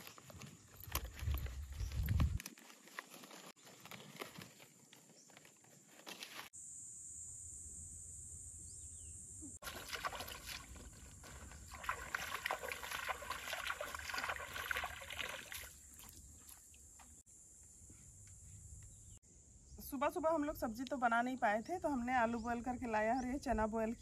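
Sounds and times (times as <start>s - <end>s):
high-pitched insect buzz: 6.6s - 9.6s.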